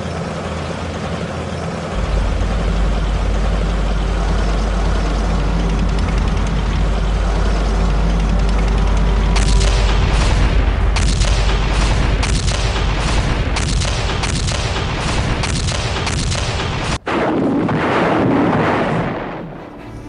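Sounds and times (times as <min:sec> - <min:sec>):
heavy engine rumble: 0:00.0 - 0:17.1
rushing blast: 0:01.5 - 0:20.0
gunshots cracking: 0:09.4 - 0:19.8.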